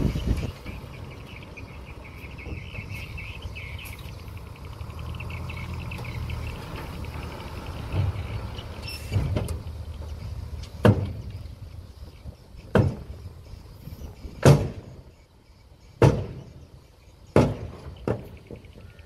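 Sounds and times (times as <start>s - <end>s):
heavy machine engine droning: 0.0s - 15.8s
loud knocks: 10.8s - 11.3s, 12.7s - 13.2s, 14.4s - 14.9s, 16.0s - 16.4s, 17.3s - 18.7s.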